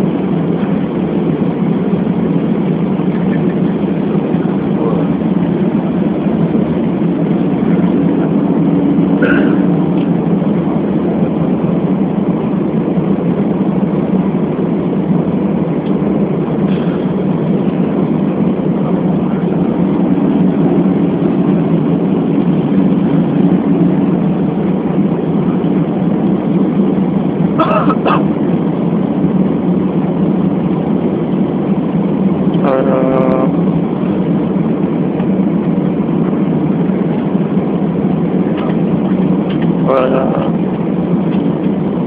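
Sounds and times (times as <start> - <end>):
airliner cabin engine rumble: 0.0 - 42.0
faint hum: 0.0 - 42.0.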